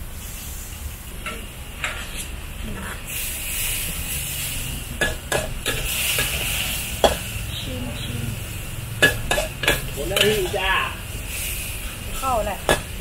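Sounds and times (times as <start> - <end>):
stir-fry sizzling in a wok: 0.0 - 13.0
metal spatula scraping a pan: 1.8 - 3.2, 4.4 - 7.3, 9.0 - 11.7.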